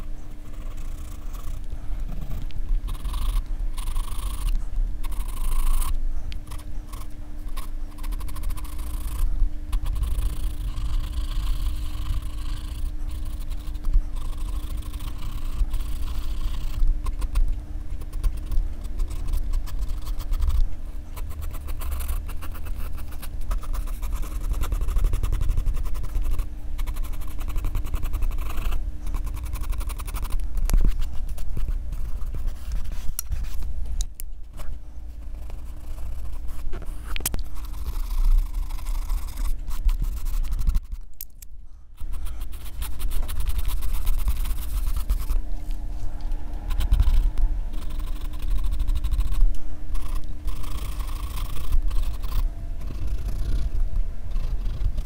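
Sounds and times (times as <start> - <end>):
faint steady hum: 0.0 - 55.0
pencil scratching on paper: 2.2 - 33.7, 35.2 - 41.0, 42.0 - 45.4, 46.7 - 49.4.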